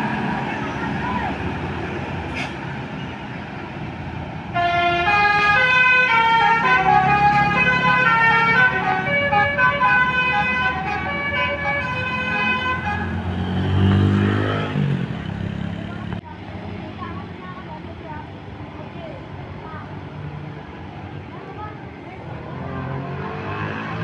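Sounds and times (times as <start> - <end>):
musical air horn melody: 4.6 - 13.3.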